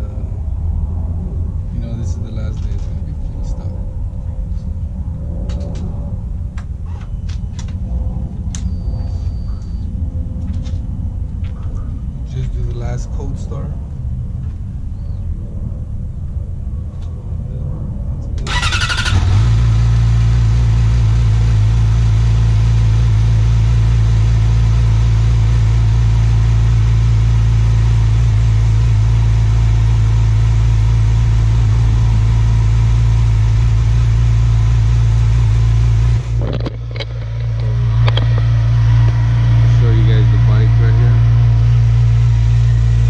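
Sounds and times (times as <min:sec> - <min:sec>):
motorcycle engine idling: 0:18.5 - 0:43.0.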